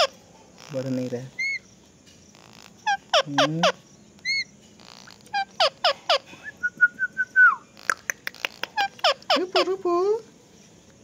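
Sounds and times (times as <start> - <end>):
parakeet squawking and chirping: 0.0 - 1.7, 2.3 - 6.4, 7.7 - 9.9.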